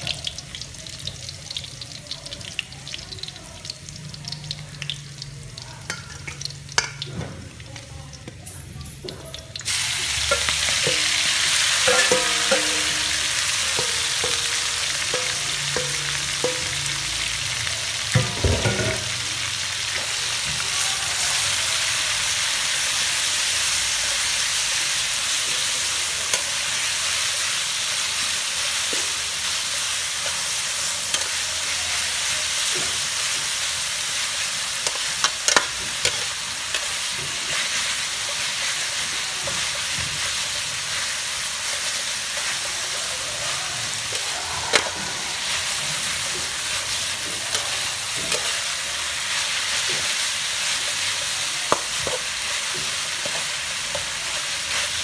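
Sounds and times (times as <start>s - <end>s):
food sizzling in a wok: 0.0s - 55.0s
metal ladle clinking against pan: 10.3s - 16.8s.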